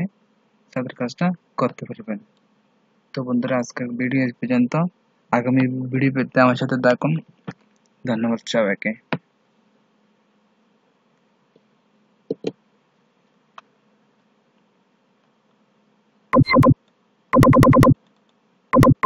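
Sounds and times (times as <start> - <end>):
electronic blips: 16.4 - 16.8, 17.4 - 18.0, 18.8 - 19.0
electronic tone bursts: 16.4 - 16.8, 17.4 - 18.0, 18.8 - 19.0.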